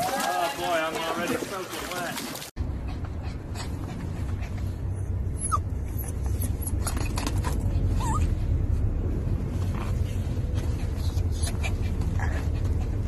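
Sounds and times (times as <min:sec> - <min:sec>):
dog whimpering squeaks: 0:05.3 - 0:08.4.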